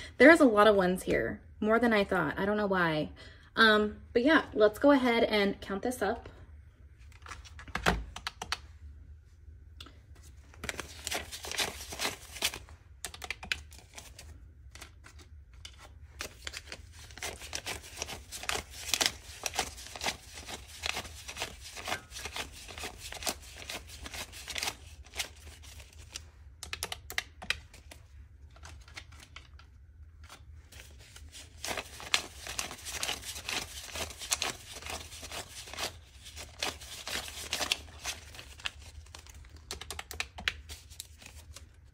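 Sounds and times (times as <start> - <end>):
banknotes being flicked and counted: 16.2 - 27.6, 31.2 - 41.4.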